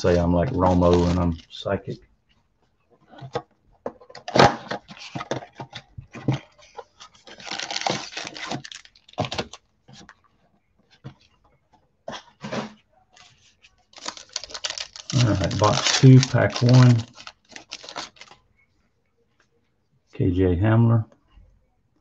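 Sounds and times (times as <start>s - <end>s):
packaging crackling and snapping: 7.2s - 9.6s, 13.9s - 18.4s
cardboard ripping: 7.3s - 9.6s, 14.0s - 18.3s.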